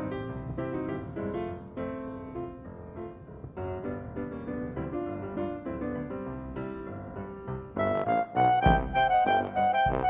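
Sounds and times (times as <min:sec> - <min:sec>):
piano-like keyboard music: 0:00.0 - 0:10.0
deep beat: 0:08.6 - 0:10.0.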